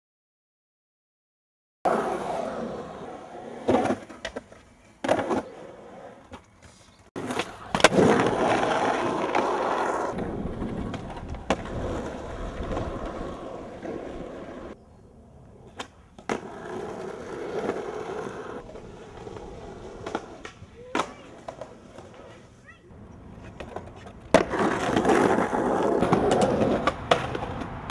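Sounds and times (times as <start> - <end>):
skateboard wheels rolling on concrete: 1.9 - 27.9
skateboard clacks: 6.2 - 14.8, 15.7 - 22.5, 23.3 - 27.9.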